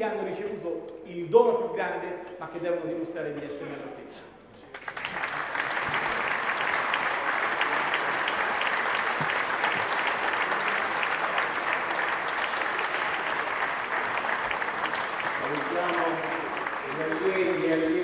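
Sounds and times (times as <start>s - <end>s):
crowd applauding: 4.7s - 18.0s.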